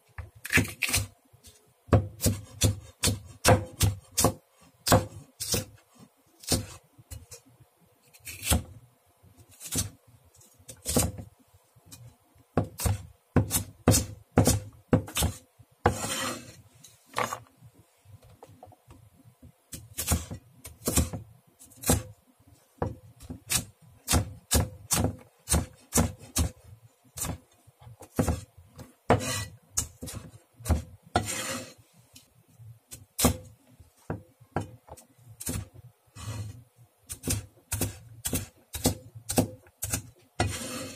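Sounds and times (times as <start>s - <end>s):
knife chopping on wooden board: 1.9s - 5.7s, 6.4s - 6.8s, 10.8s - 11.3s, 12.6s - 16.5s, 19.8s - 21.2s, 21.8s - 22.1s, 22.8s - 26.6s, 28.1s - 28.5s, 29.1s - 31.7s, 37.1s - 40.9s.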